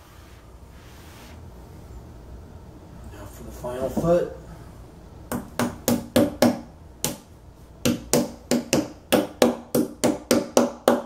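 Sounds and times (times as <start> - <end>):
hammer striking nails into wood: 5.3 - 7.2, 7.8 - 11.0.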